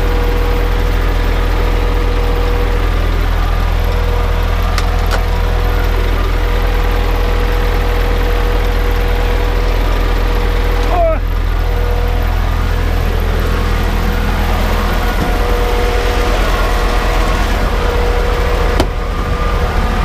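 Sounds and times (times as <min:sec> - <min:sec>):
diesel truck engine droning: 0:00.0 - 0:20.0.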